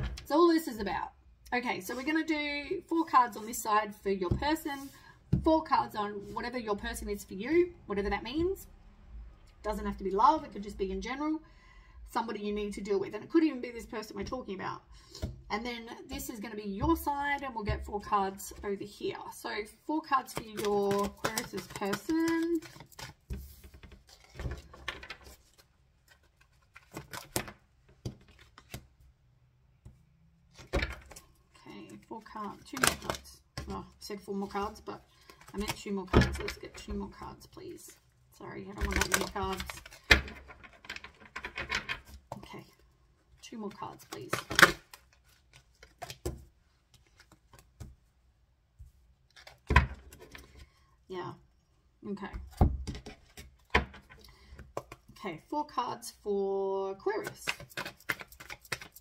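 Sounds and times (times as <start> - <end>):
cards being shuffled: 20.3 - 28.8, 57.2 - 59.0.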